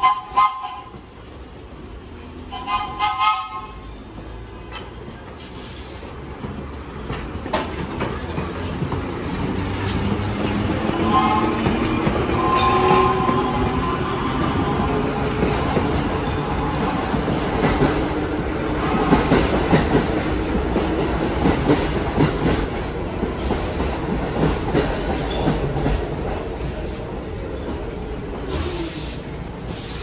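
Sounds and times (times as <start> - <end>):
train wheels clacking on rail joints: 0.0 - 27.0
burst of hiss: 28.5 - 30.0.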